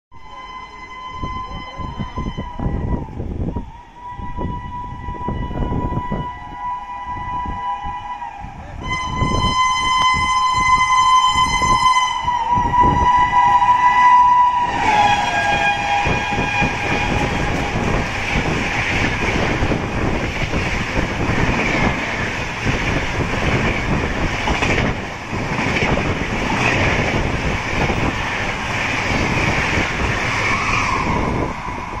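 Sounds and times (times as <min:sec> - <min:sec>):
locomotive horn blast: 0:00.1 - 0:02.9, 0:04.0 - 0:20.1
train coaches rushing past: 0:06.0 - 0:32.0.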